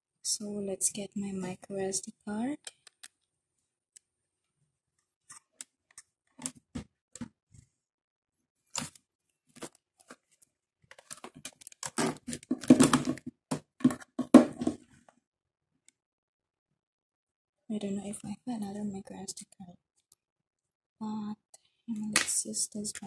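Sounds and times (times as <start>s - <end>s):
rustling and crinkling: 8.6s - 15.2s
clicks and knocks of small objects: 8.8s - 14.9s.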